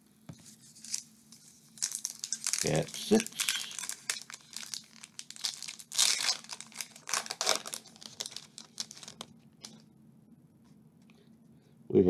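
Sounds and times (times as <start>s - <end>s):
foil wrapper tearing and crinkling: 1.8s - 9.8s.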